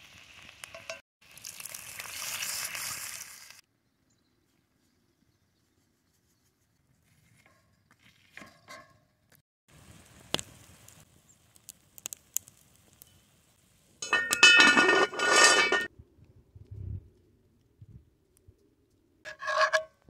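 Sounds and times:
metal scraping cast iron pot: 14.0 - 15.9, 19.3 - 20.0.

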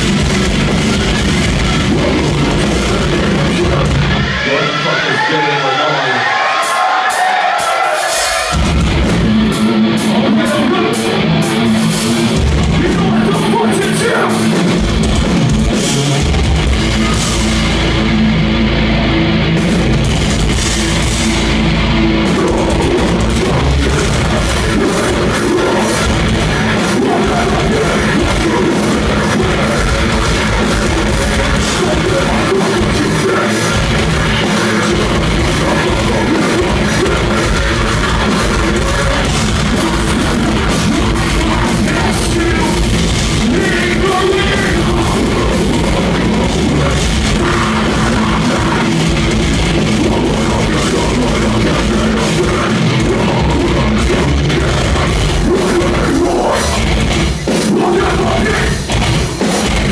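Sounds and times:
drum kit: 0.0 - 4.5, 6.4 - 59.9
vocalist singing: 0.0 - 6.2, 9.4 - 17.9, 22.1 - 59.9
bass guitar: 0.0 - 59.9
distorted electric guitars: 0.0 - 59.9.

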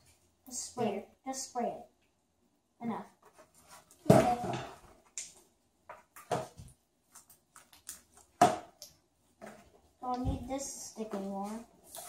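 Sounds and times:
slime squelching and clicking: 7.2 - 9.0.

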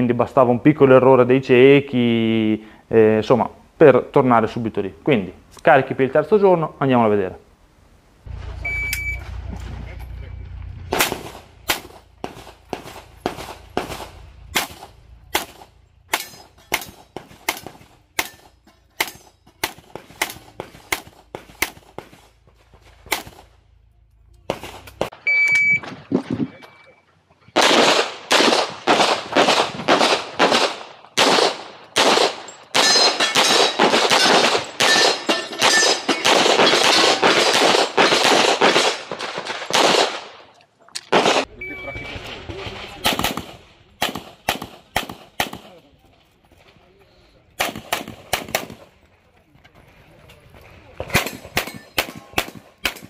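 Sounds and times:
electronic timer beep: 8.6 - 9.2, 25.2 - 25.8, 26.4 - 27.0, 41.6 - 42.1
rapid handgun fire: 10.9 - 22.3, 23.0 - 23.6, 27.6 - 40.5, 41.1 - 41.5, 42.7 - 45.8, 47.6 - 48.9, 51.1 - 53.0
pistol shots: 10.9 - 22.4, 23.0 - 23.6, 24.5 - 25.2, 27.6 - 45.8, 47.6 - 48.9, 51.0 - 53.0.

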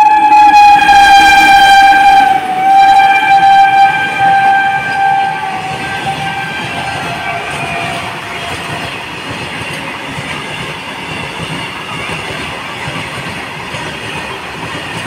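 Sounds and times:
locomotive horn: 0.0 - 8.9.

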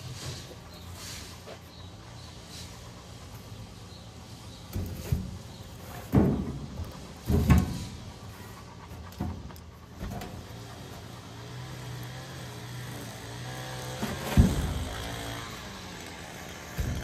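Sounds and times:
knocks and thumps on sheet metal: 4.7 - 8.0, 14.0 - 14.9, 16.8 - 17.0.

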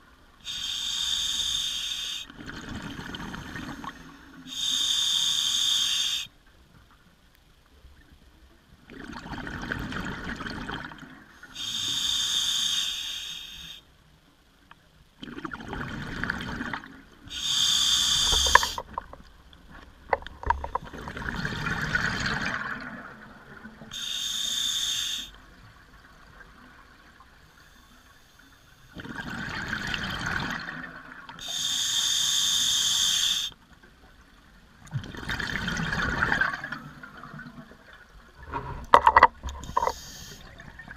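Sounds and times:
regulator hissing inhalation: 0.4 - 2.3, 4.5 - 6.3, 11.5 - 13.8, 17.3 - 18.9, 23.9 - 25.4, 31.4 - 33.6, 39.6 - 40.5
exhaled bubbles burbling: 2.3 - 4.0, 8.9 - 11.2, 15.2 - 17.0, 20.4 - 23.9, 29.0 - 31.3, 34.9 - 40.9.

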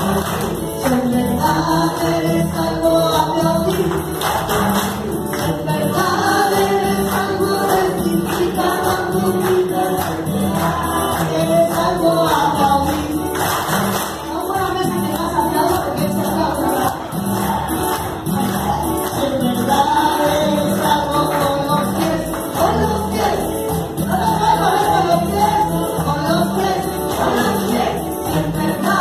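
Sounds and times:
group clapping along: 0.0 - 29.0
praise music over loudspeakers: 0.0 - 29.0
woman singing into microphone: 5.2 - 13.4, 14.1 - 29.0.

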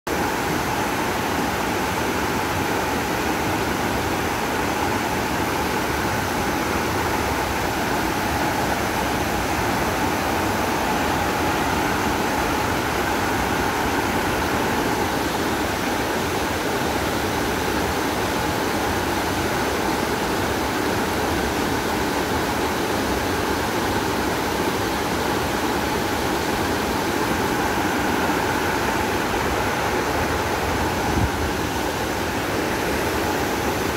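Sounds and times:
waterfall roaring: 0.1 - 33.9.

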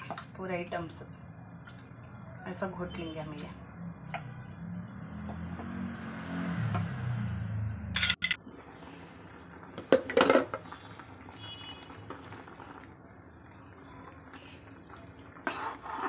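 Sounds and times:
curry bubbling: 8.4 - 16.0.

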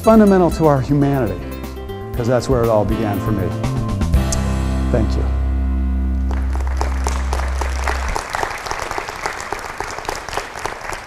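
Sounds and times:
held music chord: 0.0 - 8.4
audience applauding: 6.3 - 11.0.

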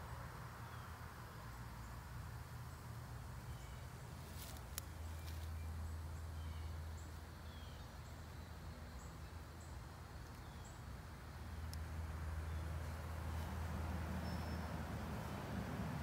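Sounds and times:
faint bird chirps: 14.2 - 14.7.

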